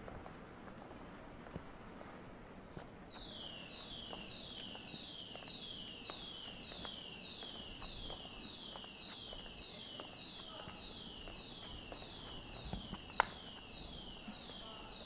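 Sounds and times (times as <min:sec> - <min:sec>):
electronic alarm falling tone: 0:03.2 - 0:15.0.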